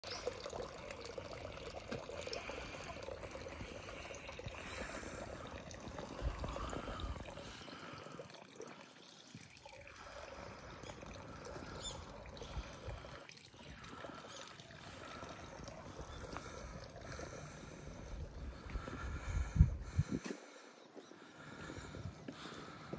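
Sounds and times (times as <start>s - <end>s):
water trickling into stone basin: 0.0s - 20.2s.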